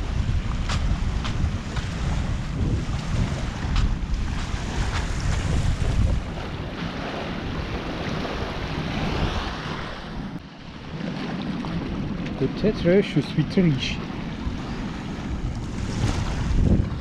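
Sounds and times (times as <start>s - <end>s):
small waves washing on shore: 0.0s - 17.0s
wind buffeting microphone: 0.0s - 17.0s.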